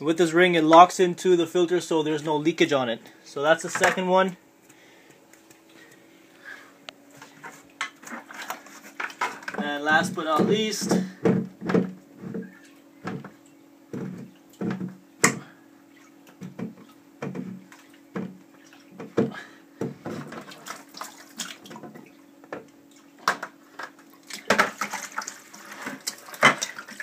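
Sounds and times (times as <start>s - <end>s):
plastic knocks and creaks: 7.2s - 15.5s, 16.3s - 20.6s
water splashing and draining: 12.5s - 22.2s, 24.0s - 27.0s.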